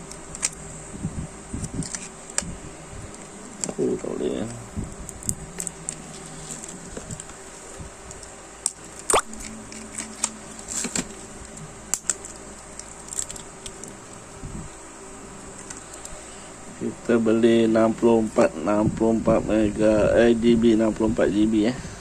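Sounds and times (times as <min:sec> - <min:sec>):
plastic packaging crackling: 0:00.0 - 0:00.6, 0:01.5 - 0:14.2, 0:15.5 - 0:16.2
scissors cutting plastic: 0:00.0 - 0:00.6, 0:01.6 - 0:02.5, 0:04.4 - 0:07.4, 0:08.0 - 0:14.0.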